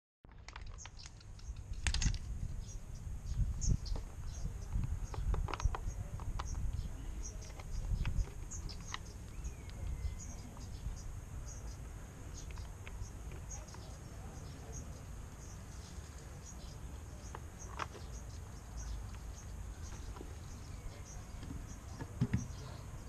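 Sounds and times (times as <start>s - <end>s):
plastic clicks and knocks: 21.4s - 22.6s.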